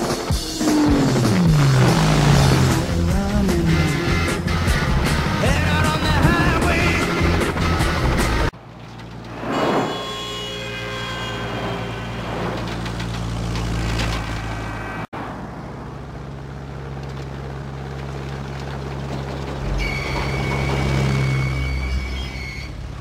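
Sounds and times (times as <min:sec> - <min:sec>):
cars on a freeway: 0:00.0 - 0:23.0
light plane engine drone: 0:11.5 - 0:19.7.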